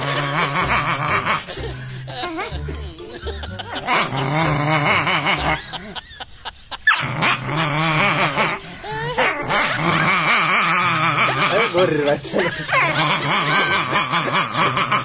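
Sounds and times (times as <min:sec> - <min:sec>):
dog snarling: 0:06.9 - 0:15.0.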